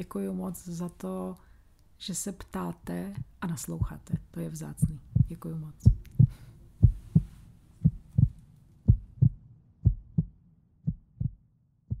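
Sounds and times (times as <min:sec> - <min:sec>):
heartbeat thumps: 0:03.2 - 0:12.0.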